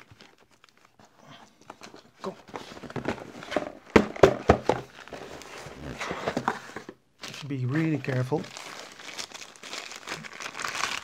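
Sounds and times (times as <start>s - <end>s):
box knocking on wooden desk: 3.6s - 4.9s
cardboard sliding and rustling: 4.7s - 7.0s.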